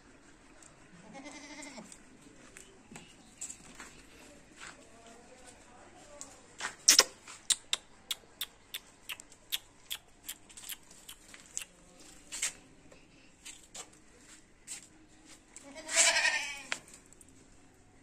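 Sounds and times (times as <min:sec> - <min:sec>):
goat kid bleating: 0:01.0 - 0:01.9, 0:15.6 - 0:16.8.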